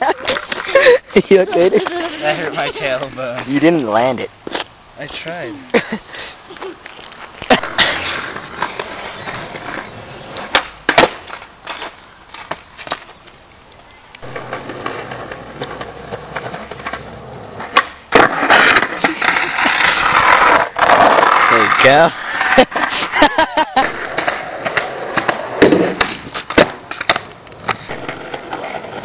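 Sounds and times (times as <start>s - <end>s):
skateboard wheels rolling on asphalt: 0.0s - 29.0s
skateboard deck clacking on ground: 6.6s - 13.4s, 14.2s - 22.9s, 23.8s - 29.0s.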